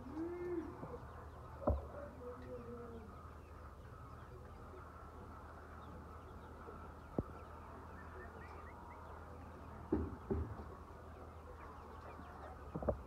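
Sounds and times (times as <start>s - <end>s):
hens calling: 0.0s - 9.9s.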